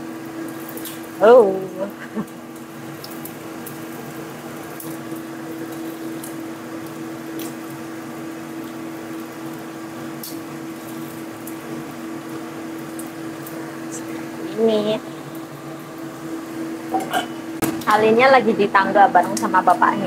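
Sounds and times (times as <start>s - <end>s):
food sizzling in oil: 0.0s - 20.0s
steady low hum: 0.0s - 20.0s.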